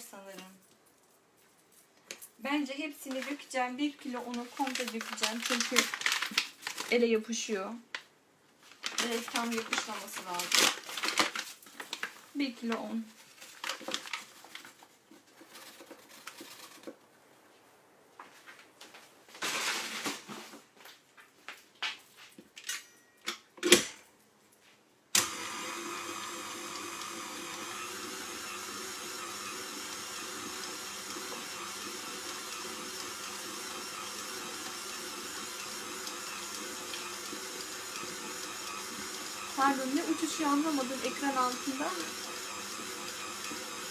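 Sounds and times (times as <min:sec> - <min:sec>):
paper bag rustling: 0:03.0 - 0:07.4, 0:08.6 - 0:17.1, 0:19.2 - 0:20.8
stand mixer running: 0:25.2 - 0:43.9.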